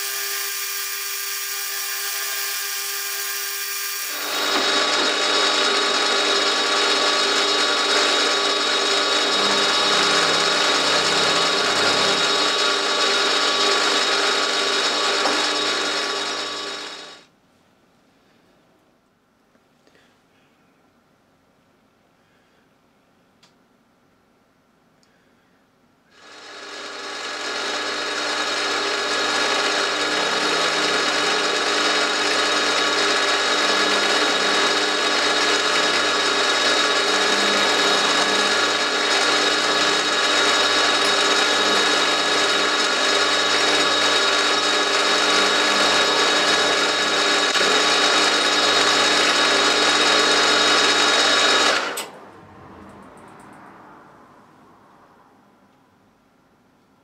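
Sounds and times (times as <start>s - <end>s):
milling machine motor whining: 0.0s - 17.2s, 26.2s - 52.1s.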